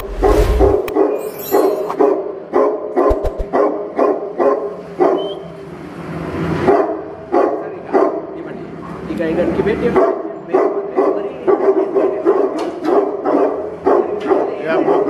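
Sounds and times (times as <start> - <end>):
dog barking: 2.0 - 5.4, 6.6 - 9.0, 9.9 - 15.0.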